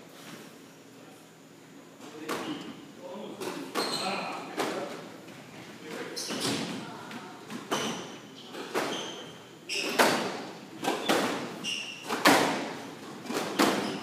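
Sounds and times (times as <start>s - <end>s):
shoes squeaking on hardwood floor: 3.6s - 4.4s, 6.0s - 6.8s, 7.5s - 12.4s, 13.2s - 14.0s
squash ball smacking walls: 9.8s - 14.0s.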